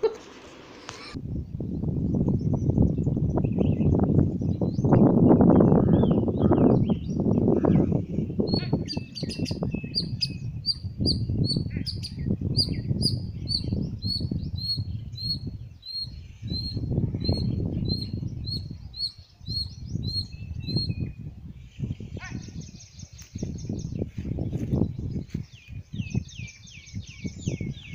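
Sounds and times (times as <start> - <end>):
squirrel chirping: 8.5 - 21.0.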